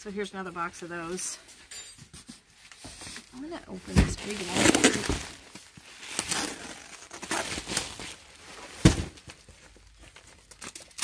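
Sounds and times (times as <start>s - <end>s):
stretch wrap crinkling: 3.0s - 11.0s
box thumping down: 8.8s - 9.3s.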